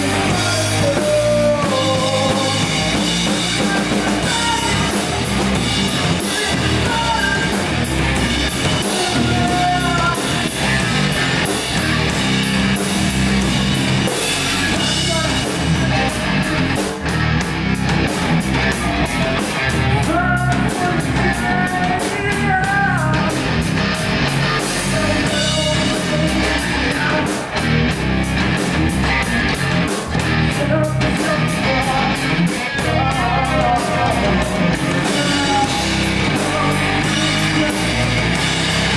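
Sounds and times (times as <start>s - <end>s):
vocalist singing: 0.0s - 12.1s, 14.3s - 17.0s, 19.1s - 23.6s, 24.5s - 27.6s, 30.3s - 38.9s
bass guitar: 0.0s - 38.9s
drum kit pounding: 0.0s - 38.9s
electric guitars: 0.0s - 38.9s.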